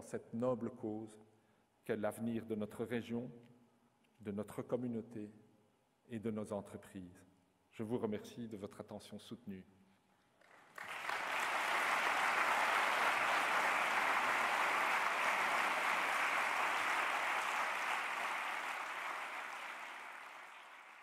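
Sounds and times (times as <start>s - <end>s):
large audience applauding: 10.4s - 21.0s.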